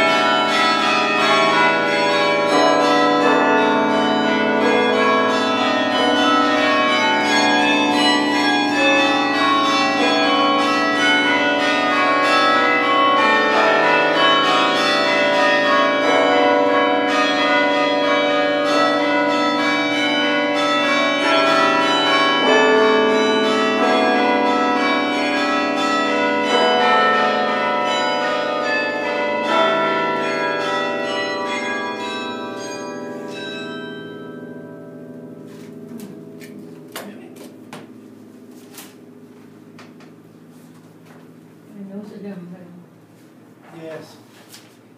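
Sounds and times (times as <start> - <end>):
carillon bells playing a tune: 0.0 - 38.3.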